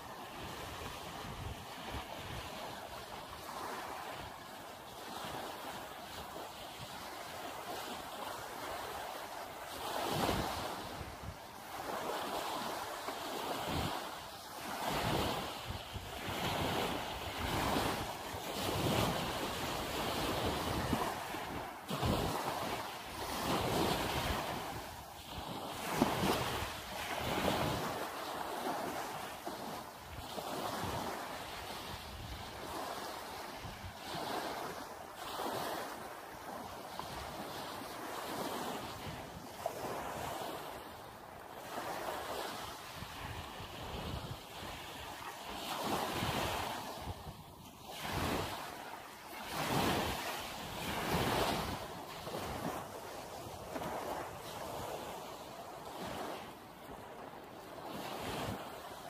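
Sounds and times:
waves washing on sand: 0.0s - 59.0s
wind buffeting microphone: 14.8s - 28.0s.

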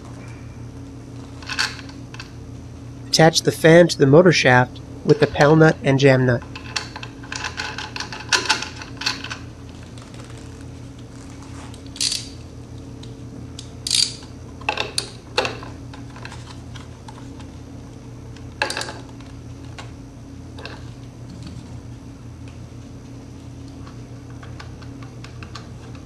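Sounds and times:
steady low hum: 0.0s - 26.0s
ratchet wrench clicking: 12.0s - 12.3s, 13.8s - 14.2s.

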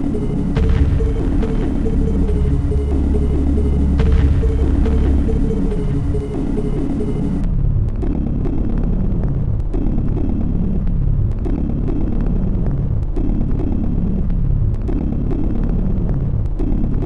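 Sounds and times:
dark electronic music: 0.0s - 17.0s
low droning rumble: 0.0s - 17.0s.

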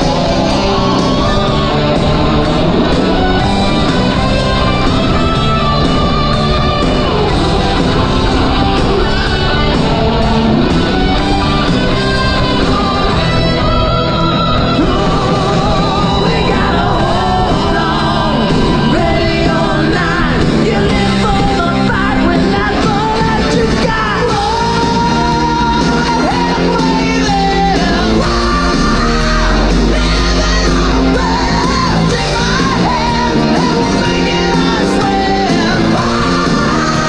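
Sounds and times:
rock song with singer: 0.0s - 37.0s.

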